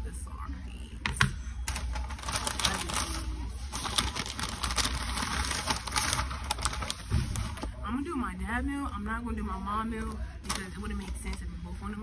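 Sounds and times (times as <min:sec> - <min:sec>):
paper bag crinkling: 0:01.7 - 0:07.8.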